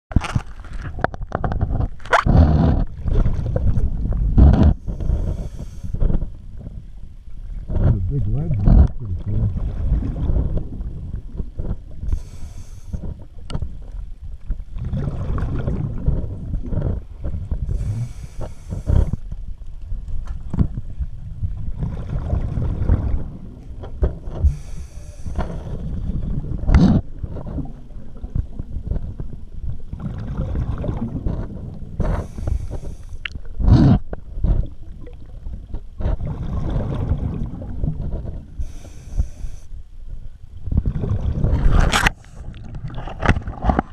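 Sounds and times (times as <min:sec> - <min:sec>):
bubbling exhaust underwater: 0:00.1 - 0:39.7, 0:40.6 - 0:43.9
regulator hissing inhale: 0:04.8 - 0:06.1, 0:12.1 - 0:13.2, 0:17.7 - 0:19.2, 0:24.4 - 0:25.7, 0:32.0 - 0:33.2, 0:38.6 - 0:39.8.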